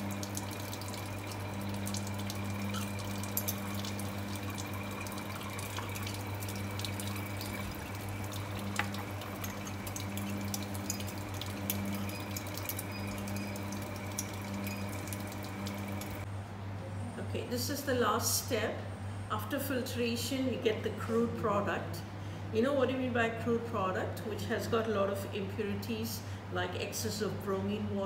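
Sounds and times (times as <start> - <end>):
water rushing into sink: 0.0 - 16.2.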